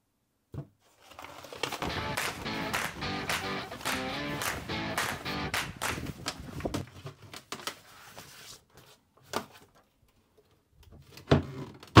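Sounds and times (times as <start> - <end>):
paper rustling: 0.8 - 1.9.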